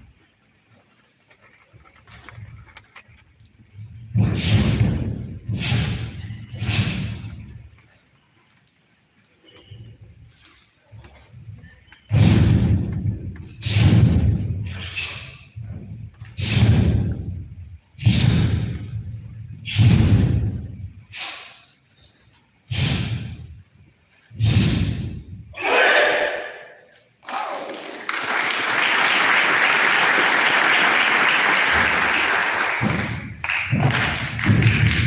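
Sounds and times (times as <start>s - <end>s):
feet stamping in unison: 32.8s - 35.0s.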